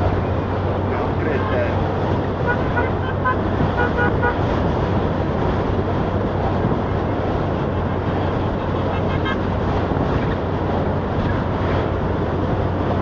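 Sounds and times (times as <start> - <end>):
car engine and road noise: 0.0 - 13.0
vehicles driving past: 0.0 - 13.0
car horn toots: 2.4 - 4.5.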